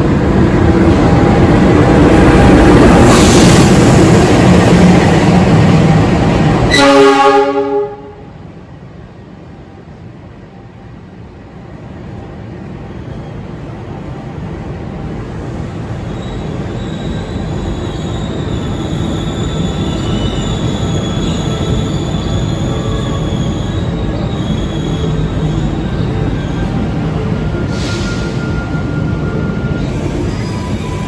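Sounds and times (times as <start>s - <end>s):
train rumble: 0.0s - 31.0s
steel wheels squealing on rails: 2.8s - 5.2s, 15.3s - 31.0s.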